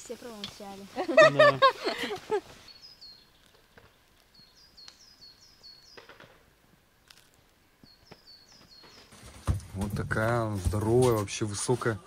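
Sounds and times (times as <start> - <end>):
small bird chirping: 2.6 - 6.2, 7.8 - 9.2.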